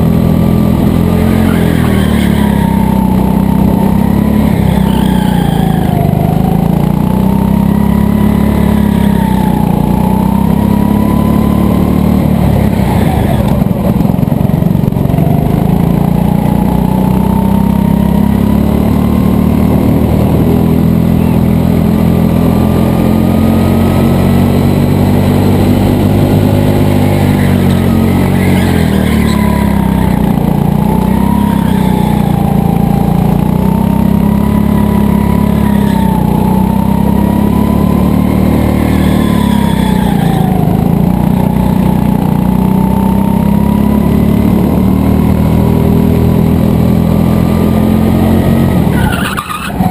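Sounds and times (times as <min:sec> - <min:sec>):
go-kart engine running hard: 0:00.0 - 0:49.9.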